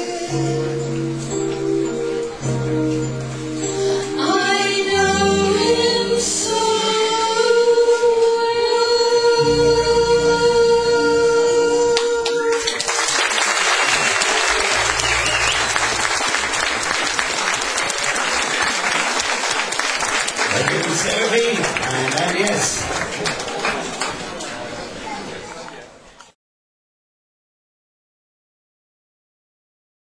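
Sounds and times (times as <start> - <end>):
keyboard chords: 0.0 - 7.3, 9.2 - 12.6, 13.6 - 18.0
women singing a duet: 3.8 - 12.8
audience applauding: 12.0 - 24.9.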